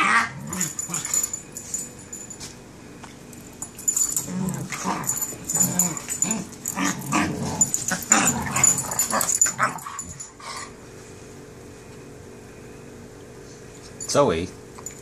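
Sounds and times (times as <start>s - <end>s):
dogs growling while playing: 0.0s - 1.8s, 3.8s - 10.8s.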